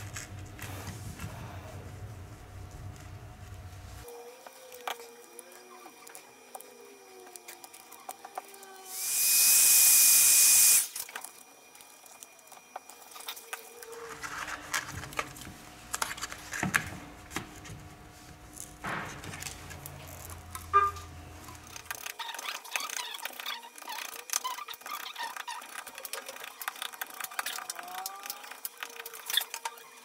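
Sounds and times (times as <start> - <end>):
air tool hissing with whine: 5.4 - 11.1.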